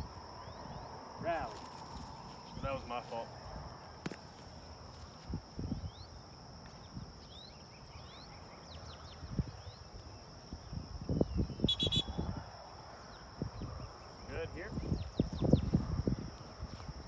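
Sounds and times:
small birds chirping: 0:05.0 - 0:17.0.

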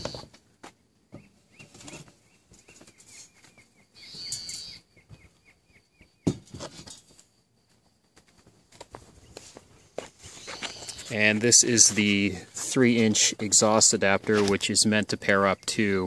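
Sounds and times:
short high bird chirps: 0:02.7 - 0:06.2
rustling and handling knocks: 0:06.2 - 0:07.2.

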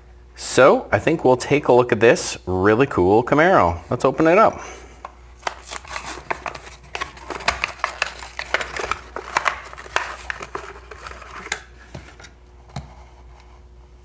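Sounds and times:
cardboard tearing: 0:05.4 - 0:12.2
plastic blister pack crinkling: 0:05.4 - 0:12.3.

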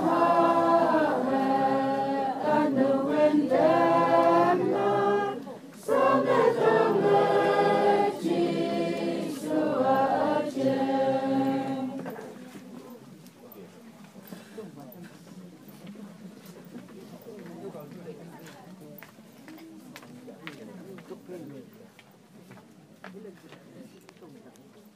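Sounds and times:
choir singing: 0:00.0 - 0:12.2.

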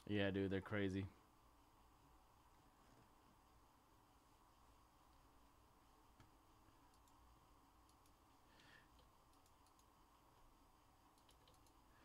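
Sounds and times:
faint clicks: 0:06.1 - 0:07.2, 0:07.8 - 0:10.0, 0:11.1 - 0:12.0.

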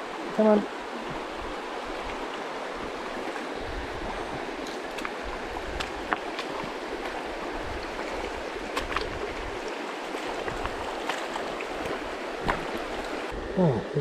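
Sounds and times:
river rushing over rapids: 0:00.0 - 0:13.4.

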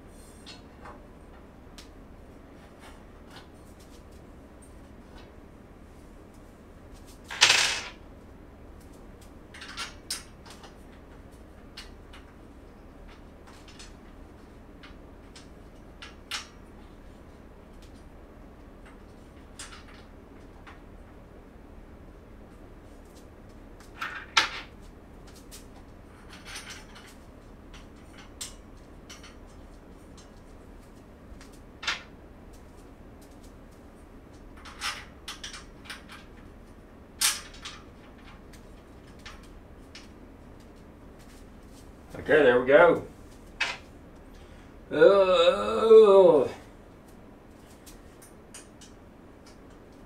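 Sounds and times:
metal parts clicking and clattering: 0:07.2 - 0:08.0, 0:09.5 - 0:12.4, 0:25.3 - 0:30.4, 0:34.5 - 0:36.5, 0:37.2 - 0:40.1.

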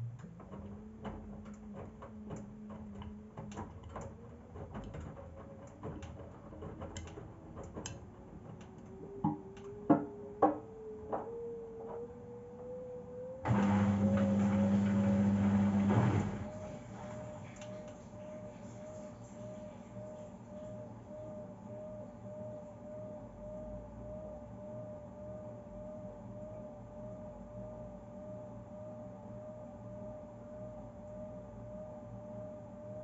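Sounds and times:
washing machine motor whine: 0:00.0 - 0:33.0
drain pump hum: 0:13.4 - 0:20.8.

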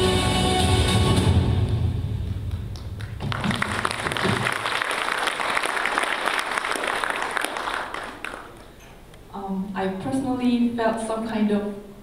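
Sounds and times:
audience applauding: 0:02.3 - 0:08.8.

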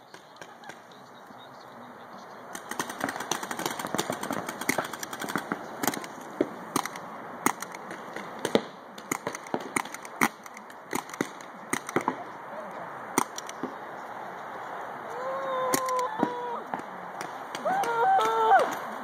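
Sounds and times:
paintball markers firing: 0:02.5 - 0:12.2, 0:13.2 - 0:13.8.

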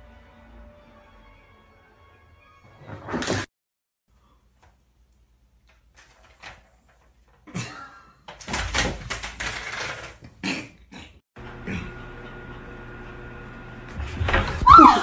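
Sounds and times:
objects thumping and clattering: 0:02.8 - 0:03.5, 0:08.3 - 0:10.3.

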